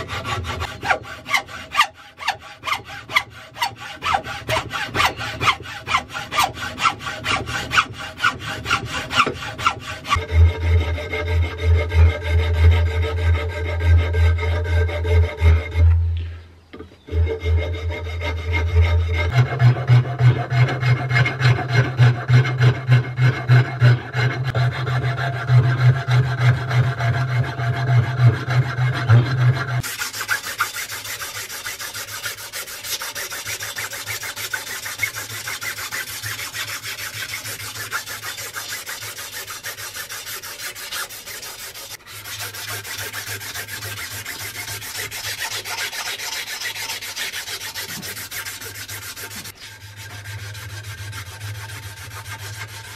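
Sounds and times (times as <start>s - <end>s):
metal file rasping on wood: 0.0s - 16.0s, 17.1s - 52.9s
sandpaper rubbing on wood: 29.3s - 52.9s.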